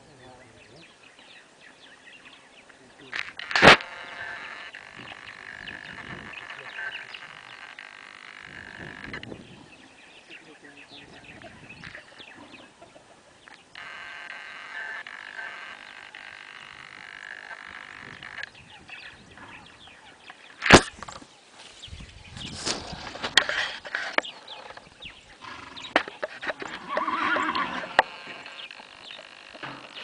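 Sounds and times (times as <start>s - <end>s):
trilling animal chorus: 0.0s - 20.8s, 22.5s - 30.0s
rustling: 20.6s - 30.0s.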